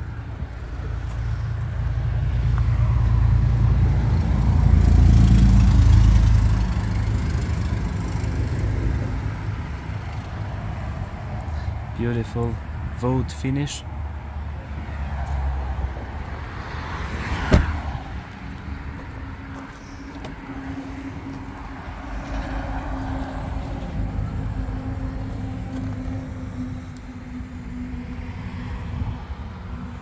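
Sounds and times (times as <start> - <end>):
low traffic rumble and hum: 0.0 - 30.0
vehicles passing: 0.0 - 30.0.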